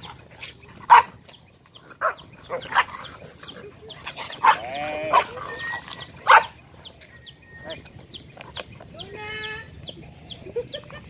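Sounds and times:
dogs barking: 0.0s - 6.9s.

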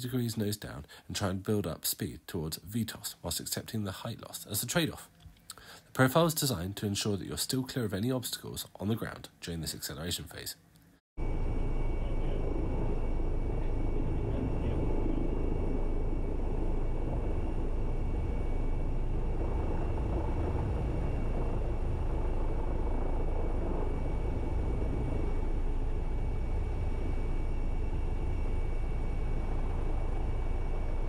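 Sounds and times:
helicopter rotor and engine noise: 11.2s - 31.0s
thin high whine: 11.2s - 31.0s.

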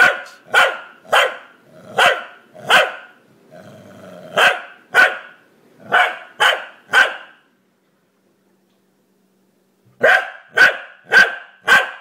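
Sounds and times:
dog barking: 0.0s - 3.2s, 4.3s - 7.4s, 10.0s - 12.0s
dog growling: 1.6s - 2.7s, 3.5s - 4.5s.

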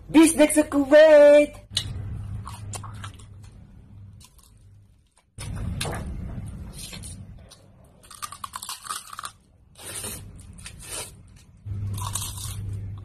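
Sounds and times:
low steady hum: 0.0s - 13.0s
crunching and chewing: 6.8s - 13.0s.

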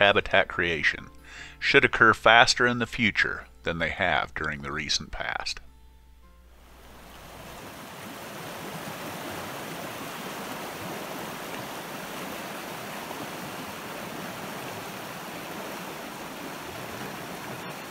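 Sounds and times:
river rushing over rocks: 7.3s - 17.9s.

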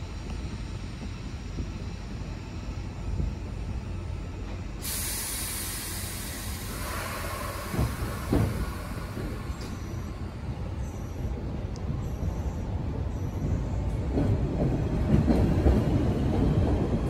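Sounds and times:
train low rumble: 0.0s - 17.0s
air brakes hissing: 4.8s - 11.1s.

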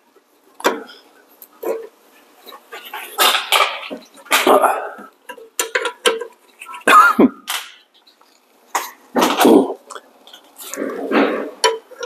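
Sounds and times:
man coughing: 6.8s - 7.5s.

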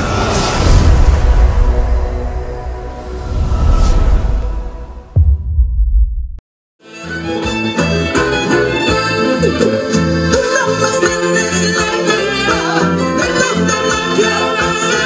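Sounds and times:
live folk band with violins: 6.8s - 15.0s.

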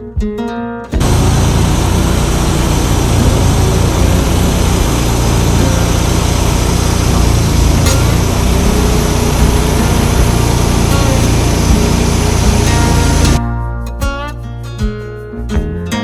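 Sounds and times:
sawmill engine running: 1.0s - 13.4s
band blade cutting log: 7.0s - 13.4s.

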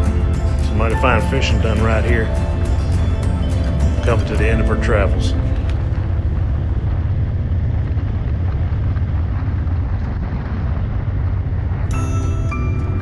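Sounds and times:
music: 0.0s - 6.9s, 11.9s - 13.0s
motorcycle engine hum: 0.0s - 13.0s
wind and road noise: 0.0s - 13.0s.

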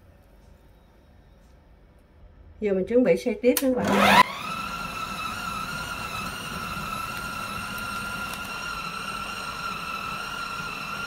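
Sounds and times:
food processor motor whining: 3.8s - 11.0s.

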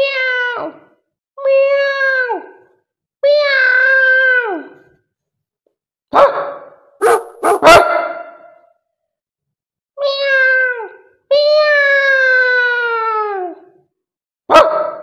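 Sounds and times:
dog barking: 6.1s - 8.6s, 14.5s - 15.0s.

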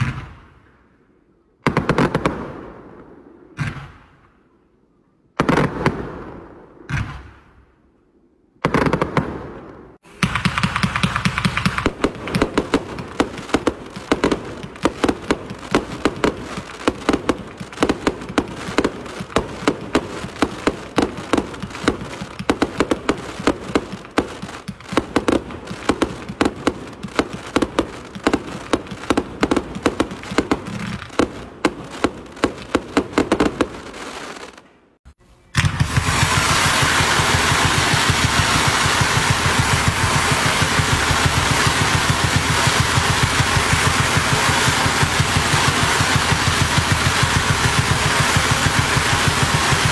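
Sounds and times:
firework shell bursts: 10.0s - 18.5s, 35.6s - 49.9s
rapid firework shots rattling: 10.0s - 34.6s, 35.6s - 49.9s.

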